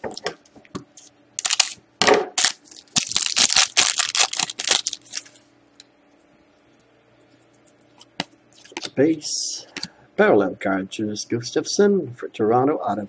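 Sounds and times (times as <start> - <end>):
foil wrapper crinkling and tearing: 1.4 - 1.8, 2.4 - 5.4.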